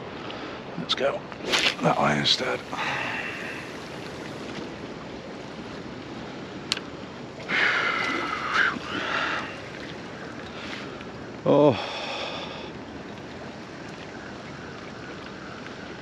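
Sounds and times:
sea water around rocks: 0.0 - 16.0
wind: 0.0 - 16.0.

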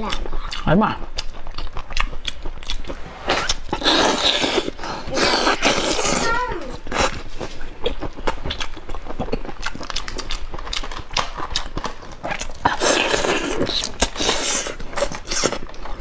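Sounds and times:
person chewing: 0.0 - 16.0
hissing slurps: 2.5 - 7.3.

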